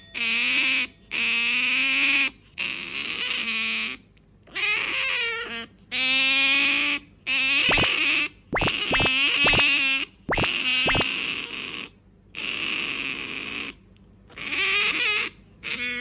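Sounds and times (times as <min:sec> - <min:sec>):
otter whining calls: 0:07.3 - 0:11.7.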